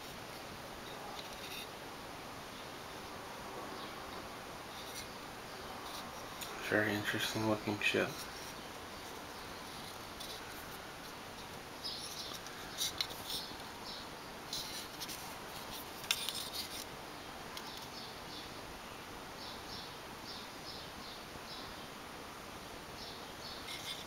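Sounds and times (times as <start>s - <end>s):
fingers handling metal model: 0.9s - 1.7s, 8.0s - 13.7s, 14.5s - 16.9s, 23.6s - 24.0s.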